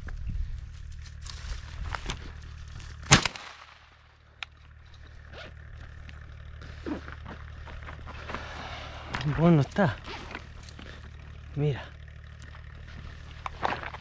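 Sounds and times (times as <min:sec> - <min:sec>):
footsteps on stony ground: 0:00.0 - 0:03.1, 0:04.5 - 0:14.0
shotgun shot: 0:03.1 - 0:03.9.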